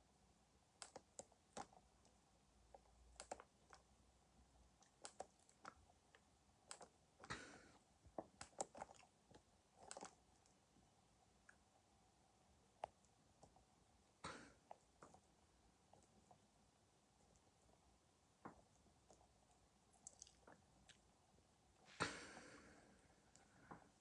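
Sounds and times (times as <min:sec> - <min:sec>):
faint clicks and taps: 0:00.8 - 0:03.9, 0:04.7 - 0:10.6, 0:12.8 - 0:13.7, 0:14.3 - 0:16.5, 0:18.4 - 0:21.1.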